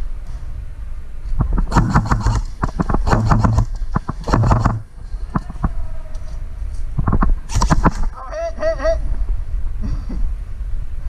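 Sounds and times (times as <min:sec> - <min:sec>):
low thudding: 0:01.4 - 0:05.8
airsoft guns firing: 0:01.6 - 0:04.8.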